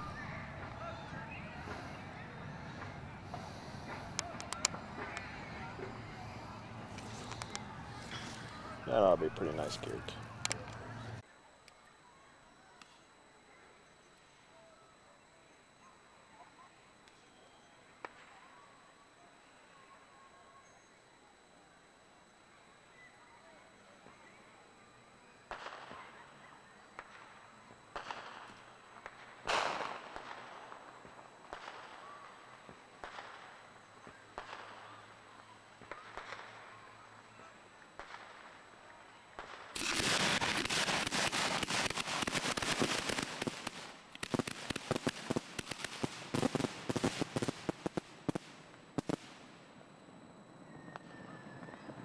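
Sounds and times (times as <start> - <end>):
fireworks crackling: 0.0 - 10.9, 25.5 - 26.2, 26.9 - 49.9
fireworks bangs: 27.9 - 35.0, 35.8 - 36.7, 38.0 - 38.6, 39.3 - 49.7.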